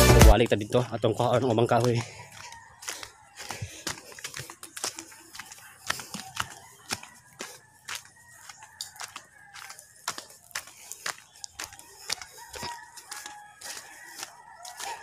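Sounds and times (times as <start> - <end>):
rooster crowing faintly: 5.0 - 10.7, 11.4 - 15.0.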